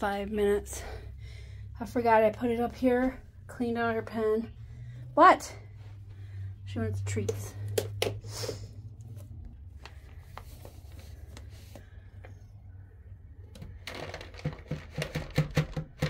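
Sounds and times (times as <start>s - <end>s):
treat packet crinkling and rattling: 13.6s - 15.8s.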